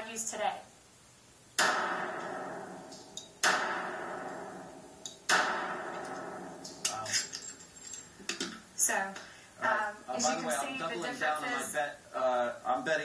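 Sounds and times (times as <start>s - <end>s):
pistol shots with echo: 1.6s - 6.8s.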